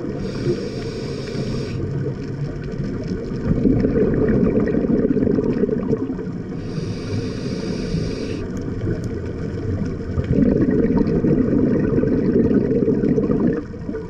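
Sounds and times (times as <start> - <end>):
hissing regulator inhale: 0.0 - 2.0, 6.5 - 8.6
exhaled air bubbling underwater: 0.0 - 14.0.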